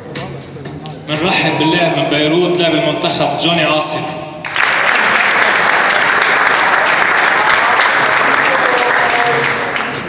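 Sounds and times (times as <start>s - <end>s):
audience applauding: 4.4s - 10.0s.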